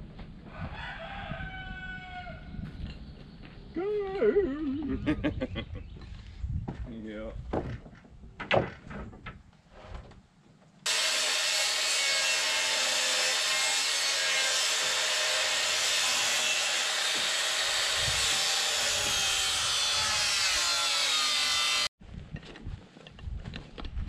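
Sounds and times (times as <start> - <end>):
circular saw cutting wood: 10.9 - 21.9.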